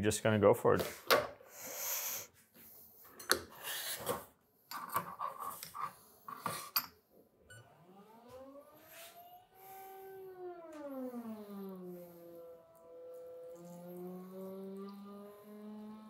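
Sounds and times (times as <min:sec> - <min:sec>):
espresso pump whine: 0:07.6 - 0:16.0.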